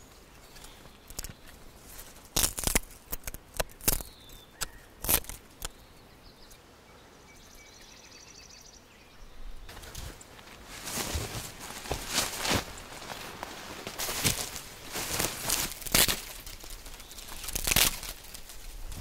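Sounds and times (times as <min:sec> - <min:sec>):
wood cracking and snapping: 0:01.0 - 0:01.6, 0:02.2 - 0:05.7, 0:13.8 - 0:19.0
footsteps in grass: 0:09.7 - 0:19.0.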